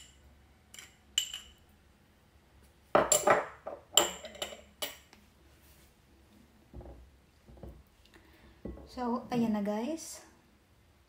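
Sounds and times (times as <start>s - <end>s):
spoon and glass bowl clinking: 0.7s - 1.6s.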